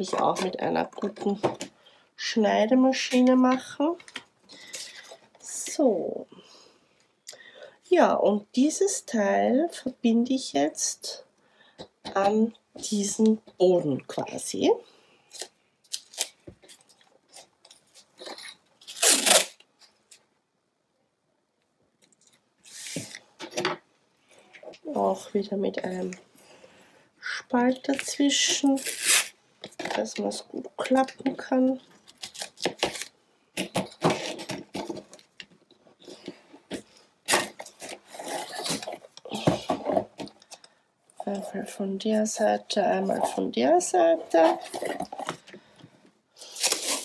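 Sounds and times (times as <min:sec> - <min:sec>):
paper tape pulled off roll: 0:22.6 - 0:23.2.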